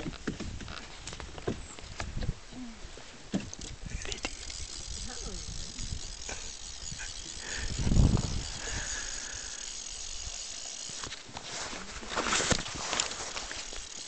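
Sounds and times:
fishing reel drag ratcheting: 3.4s - 11.3s, 12.5s - 14.0s.

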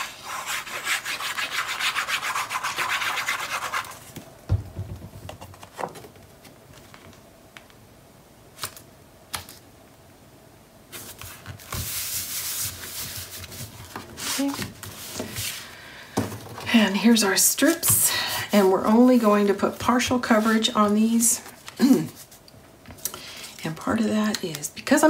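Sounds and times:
palms rubbing paper: 0.0s - 4.1s.

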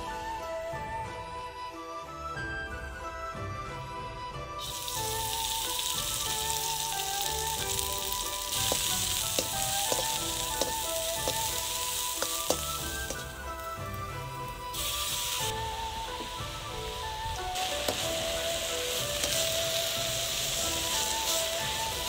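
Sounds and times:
vegetables sizzling in hot oil: 4.6s - 22.0s
metal ladle clicking against wok: 8.6s - 11.6s, 12.2s - 13.3s.

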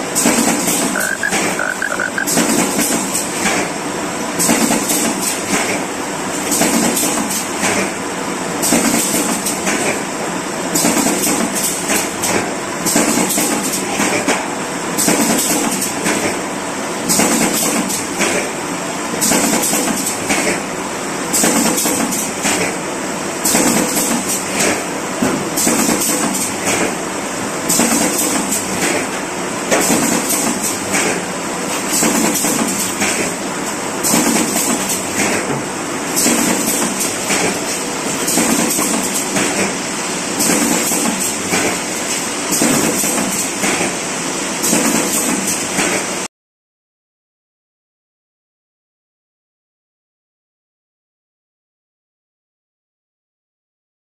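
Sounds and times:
machine clack: 0.1s - 3.7s, 4.4s - 8.0s, 8.6s - 10.0s, 10.7s - 14.4s, 15.0s - 16.4s, 17.1s - 18.5s, 19.2s - 20.6s, 21.3s - 22.8s, 23.4s - 27.0s, 27.6s - 33.4s, 34.0s - 44.0s, 44.6s - 46.2s
machine mechanical clatter: 25.6s - 27.0s, 27.6s - 33.4s, 34.0s - 44.0s, 44.6s - 46.2s.

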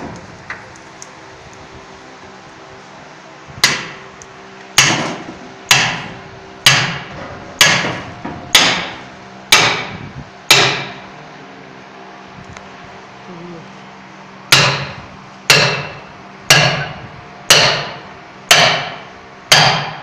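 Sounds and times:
hammer striking steel: 3.6s - 4.0s, 4.8s - 11.0s, 14.5s - 20.0s.

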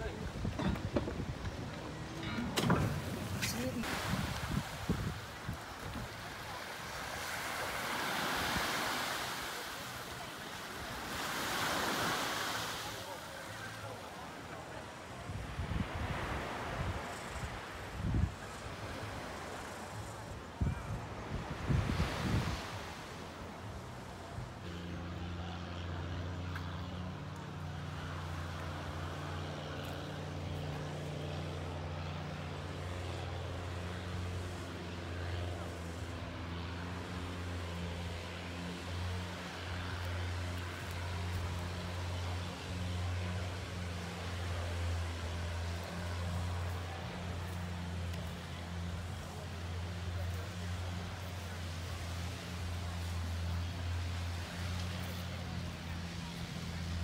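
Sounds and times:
wind on microphone: 0.0s - 6.2s
small waves breaking on beach: 0.0s - 57.0s
speedboat engines humming: 0.0s - 57.0s.

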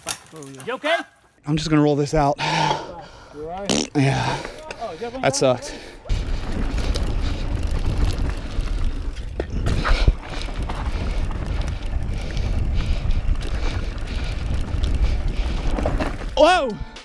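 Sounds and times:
bike rattling on rocky trail: 4.0s - 16.8s
wind buffeting the microphone: 6.1s - 16.4s.

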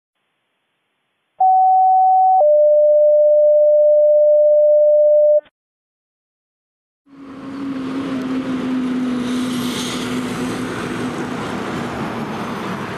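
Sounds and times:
electronic beep tones: 1.4s - 5.4s.

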